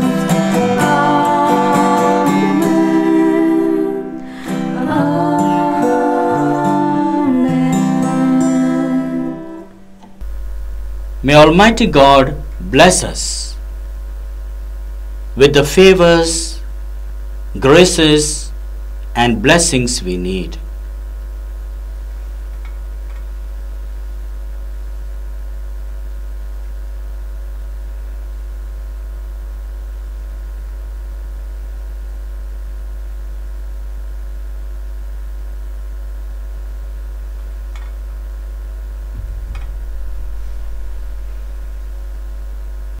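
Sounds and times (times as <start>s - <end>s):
electrical mains hum: 0.0s - 43.0s
low thud with rumble: 10.2s - 12.8s, 39.0s - 43.0s.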